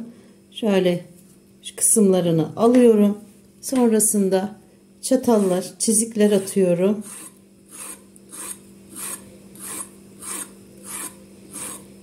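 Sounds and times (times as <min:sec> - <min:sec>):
fork scraping zucchini skin: 0:06.3 - 0:11.9.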